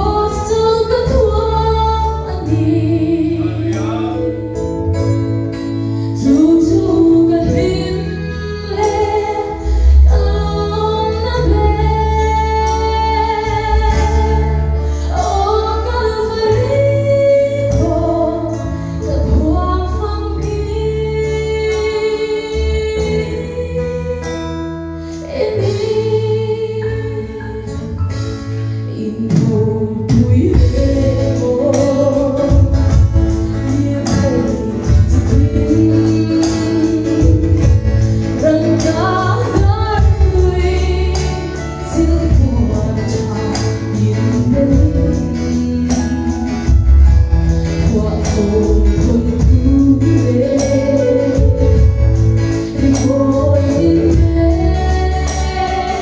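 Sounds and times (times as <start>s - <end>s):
woman singing gospel song: 0.0s - 4.0s, 6.2s - 46.9s, 47.6s - 56.0s
bass line: 0.0s - 56.0s
electric guitars: 0.0s - 56.0s.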